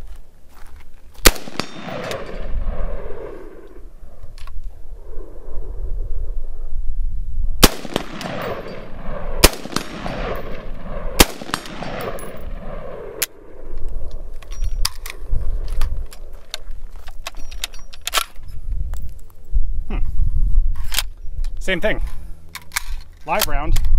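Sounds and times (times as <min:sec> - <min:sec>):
rifle shots echoing: 0:01.2 - 0:03.8, 0:07.6 - 0:14.3.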